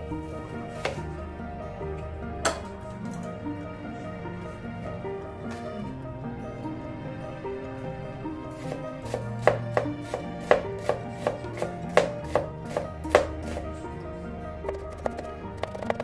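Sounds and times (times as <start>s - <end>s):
soft background music: 0.0s - 16.0s
knife chopping on cutting board: 9.1s - 13.6s.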